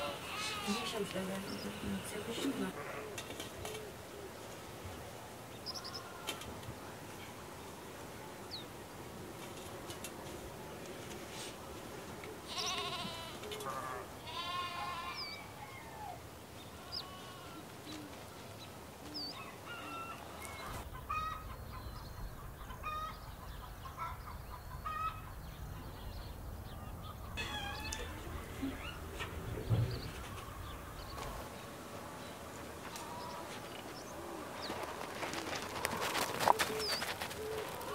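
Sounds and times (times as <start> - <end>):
farmyard animal bleating: 0.0 - 3.2, 5.7 - 6.5, 12.4 - 15.5, 16.6 - 18.0, 27.4 - 31.3, 32.8 - 33.7
small birds chirping: 0.0 - 8.8, 12.0 - 13.7, 14.3 - 37.9.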